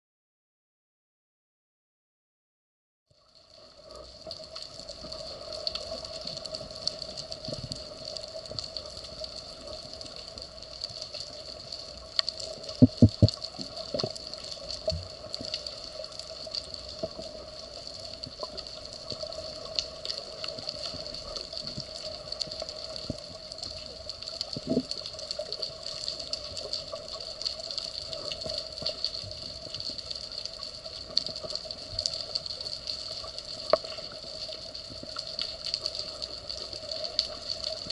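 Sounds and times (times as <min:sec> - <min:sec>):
small clicks and crackles: 0:03.1 - 0:37.9
dull knocks: 0:12.8 - 0:13.4.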